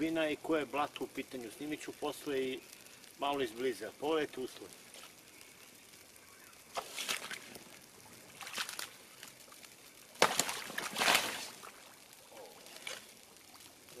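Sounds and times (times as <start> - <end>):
boots splashing in muddy water: 8.4 - 8.9, 10.2 - 11.8.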